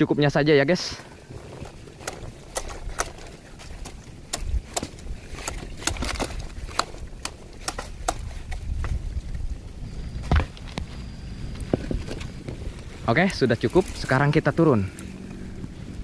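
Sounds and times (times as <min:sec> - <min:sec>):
low rumble: 0:01.0 - 0:16.0
coconuts snapping off: 0:01.6 - 0:09.0.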